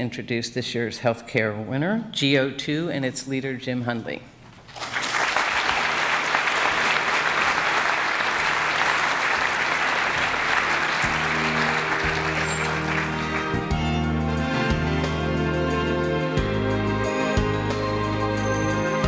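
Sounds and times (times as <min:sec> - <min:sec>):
audience applauding: 0:04.7 - 0:14.2
music: 0:10.0 - 0:19.0.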